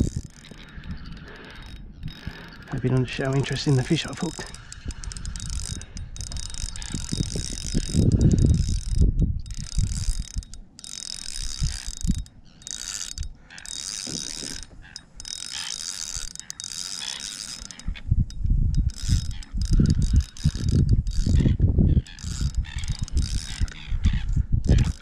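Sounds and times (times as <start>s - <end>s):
fishing reel whirring: 0.0s - 25.0s.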